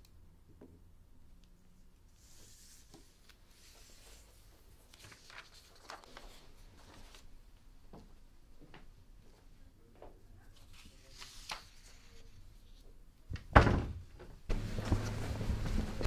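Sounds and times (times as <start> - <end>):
paper rustling: 2.1 - 7.4, 10.4 - 12.9, 14.5 - 16.0.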